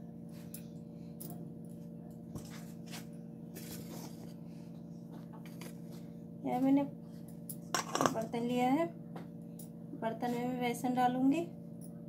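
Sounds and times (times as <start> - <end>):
low steady hum: 0.0 - 12.0
steel bowl handled: 7.8 - 8.2.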